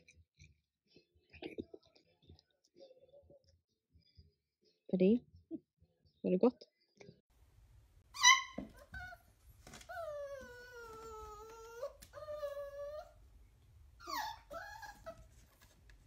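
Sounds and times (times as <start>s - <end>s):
puppy yelping: 8.1s - 13.2s, 14.0s - 15.7s
puppy whining: 8.1s - 13.3s, 14.0s - 15.8s.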